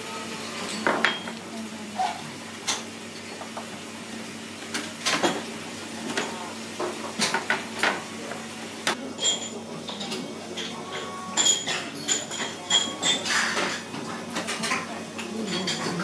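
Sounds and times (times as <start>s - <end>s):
dishes and utensils clinking: 0.4s - 1.4s, 2.0s - 3.7s, 8.9s - 16.0s.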